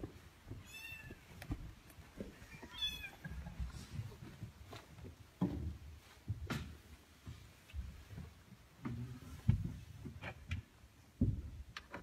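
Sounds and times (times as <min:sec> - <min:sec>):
cat meowing: 0:00.6 - 0:01.3, 0:02.4 - 0:03.3
faint low thuds: 0:03.6 - 0:11.8.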